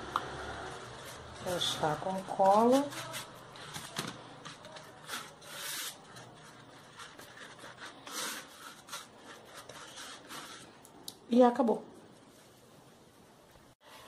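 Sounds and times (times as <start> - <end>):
brush spreading glue: 4.7 - 10.8.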